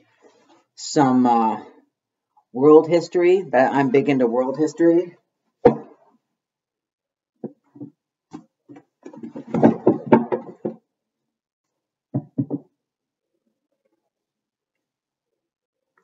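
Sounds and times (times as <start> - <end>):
books knocking against wooden shelf: 5.6 - 6.0, 7.4 - 10.8, 12.1 - 12.7
books rustling and bumping: 7.7 - 10.8.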